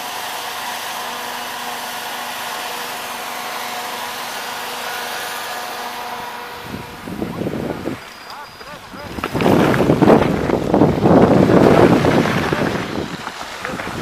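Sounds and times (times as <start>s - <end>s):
snow cannon fan whoosh: 0.0s - 14.0s
wind buffeting the microphone: 6.5s - 14.0s.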